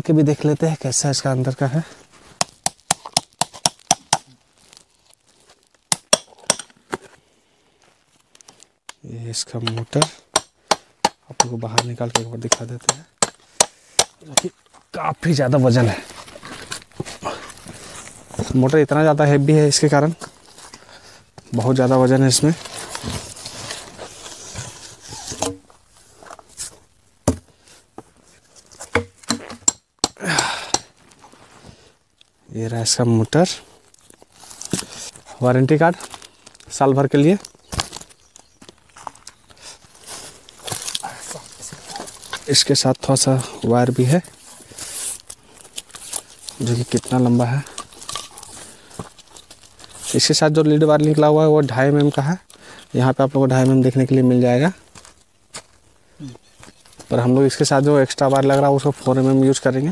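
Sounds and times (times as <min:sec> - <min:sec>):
rustling of packing: 0:15.7 - 0:18.7, 0:22.3 - 0:26.9, 0:33.8 - 0:42.6, 0:44.0 - 0:50.4.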